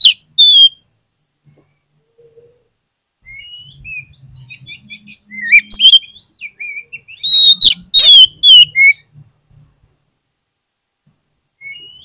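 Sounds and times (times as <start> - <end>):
bird singing whistled phrases: 3.2 - 9.0, 11.6 - 12.0.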